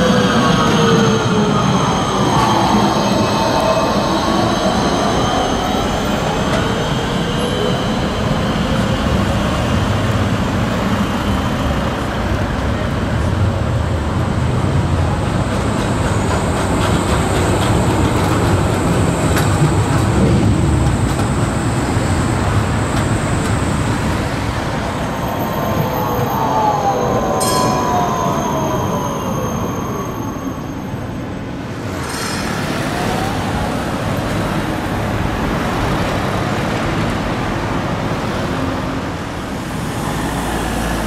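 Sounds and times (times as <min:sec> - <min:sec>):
tram wheels rumbling on rails: 0:00.0 - 0:41.0
high wheel squeal: 0:24.9 - 0:31.4.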